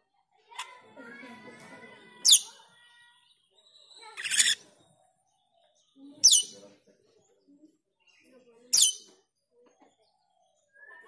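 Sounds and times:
starling calls: 4.1 - 4.6.

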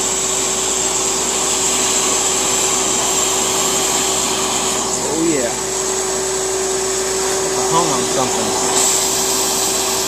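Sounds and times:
router motor whine: 0.0 - 10.0
cutting hiss: 7.6 - 10.0.

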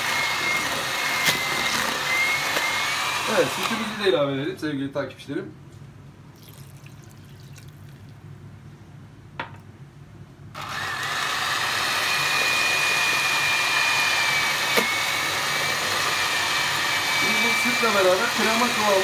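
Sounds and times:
electric hand mixer whining: 0.0 - 4.2, 10.6 - 19.0.

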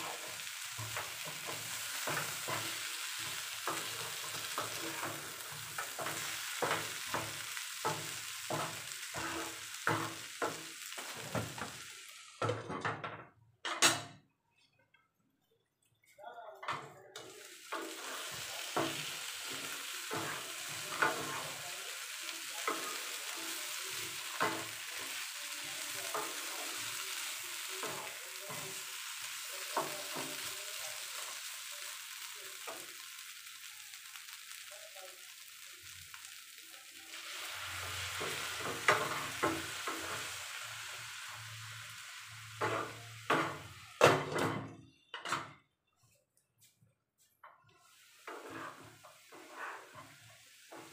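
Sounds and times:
spatula scraping and tapping pan: 0.0 - 11.8, 17.7 - 21.6, 22.5 - 30.5, 37.8 - 40.4, 42.6 - 44.6, 47.4 - 50.9
chicken sizzling in oil: 0.0 - 12.6, 17.2 - 44.5, 47.7 - 50.9.

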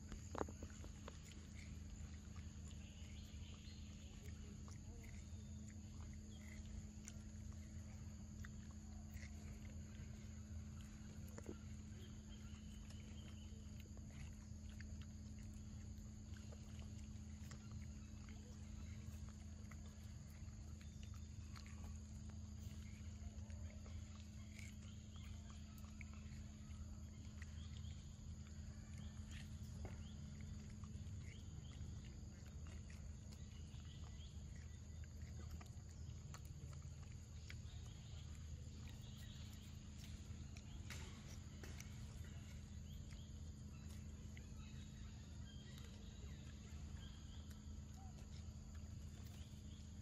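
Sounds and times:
low hum: 0.0 - 50.0
monkey chewing and smacking: 0.0 - 50.0.

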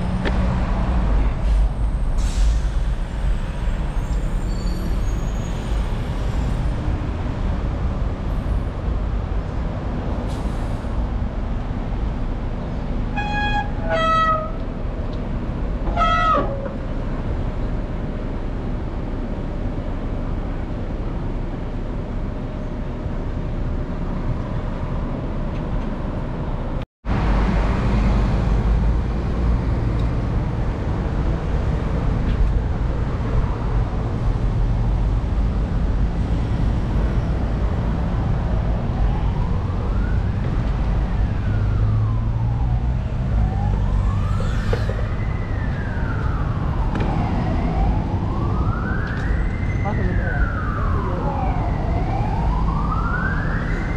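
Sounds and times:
wind and road rumble: 0.0 - 53.9
vehicle horn toots: 13.2 - 14.6, 15.9 - 16.5.

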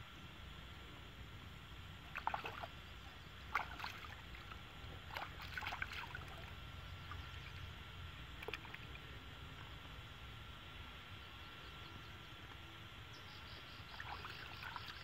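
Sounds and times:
hands splashing in pond water: 2.1 - 2.8, 3.5 - 6.5, 8.4 - 9.0.

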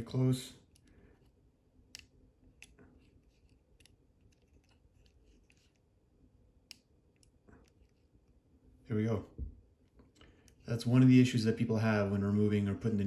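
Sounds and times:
small clicks of turning needle: 1.9 - 5.9, 6.6 - 8.4.

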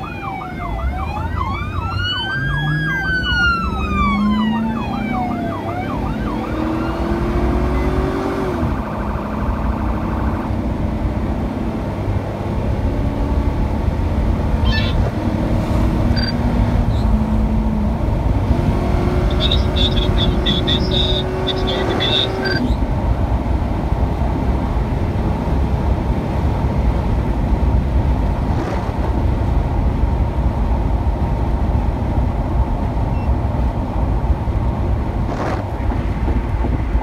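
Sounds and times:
police sirens yelp and wail: 0.0 - 11.1, 14.5 - 15.2, 18.4 - 22.9
car rumble on wet road: 8.6 - 37.0.

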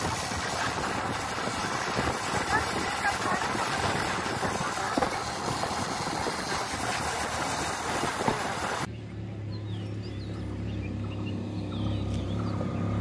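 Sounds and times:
wind buffeting microphone: 0.0 - 8.9.

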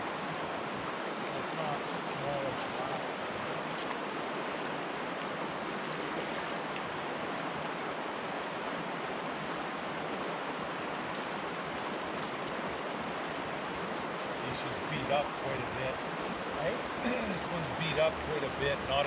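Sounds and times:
river current over gravel: 0.0 - 19.0.

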